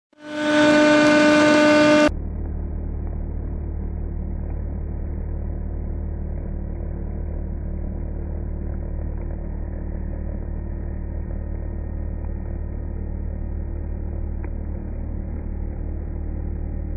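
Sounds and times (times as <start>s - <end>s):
cnc router spindle cutting plastic: 0.2s - 2.1s.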